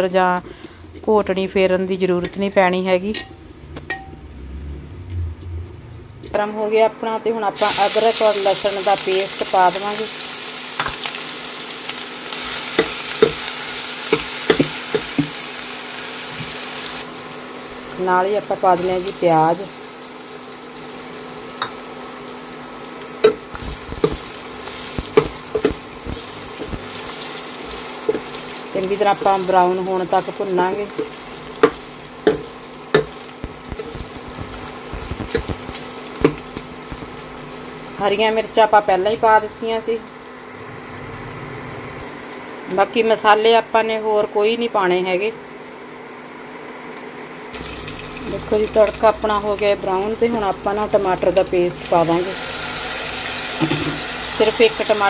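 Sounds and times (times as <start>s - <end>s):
paste sizzling in hot oil: 7.6s - 17.9s, 18.7s - 38.0s, 47.6s - 55.0s
spatula knocking against pan: 14.2s - 15.4s.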